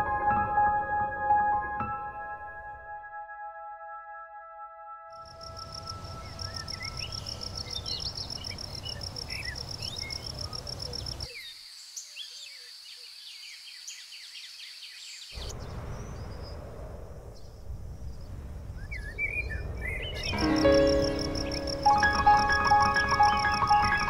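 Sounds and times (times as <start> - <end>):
insects trilling: 5.3 - 16.7, 17.4 - 24.0
bird chirps: 5.4 - 16.6, 18.8 - 24.0
low rumbling noise: 15.4 - 24.0.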